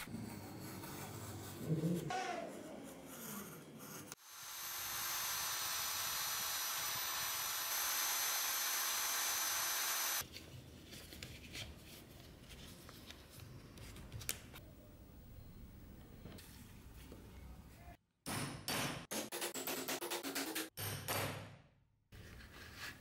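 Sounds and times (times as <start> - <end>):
power tool motor whining: 4.2 - 10.2.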